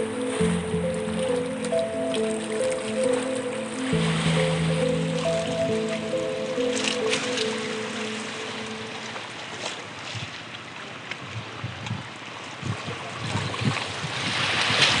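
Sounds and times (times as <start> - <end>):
sea water lapping: 0.0 - 15.0
wind on microphone: 11.2 - 15.0.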